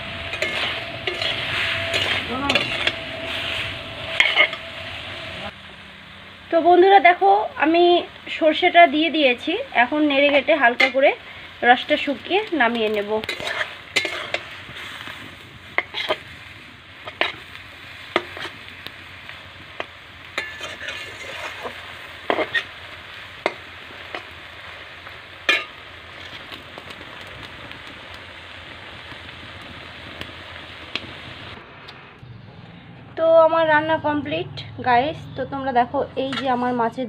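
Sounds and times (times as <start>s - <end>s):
metal spatula scraping a pan: 0.0s - 5.4s, 13.0s - 16.4s, 17.0s - 18.6s, 20.3s - 24.3s, 25.5s - 26.6s, 36.2s - 36.9s
vegetables sizzling in a wok: 0.0s - 32.2s, 33.5s - 37.0s.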